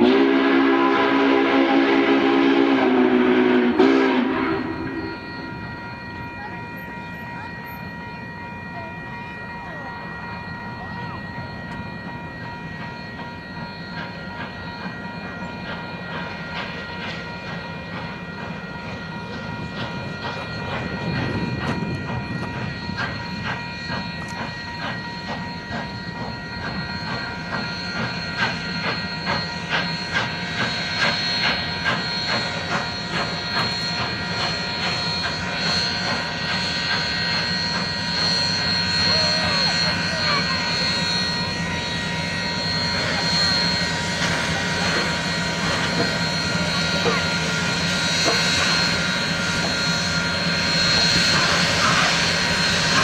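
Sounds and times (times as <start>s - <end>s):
steam locomotive exhaust beats: 0.0s - 53.0s
steady steam hiss: 22.6s - 53.0s.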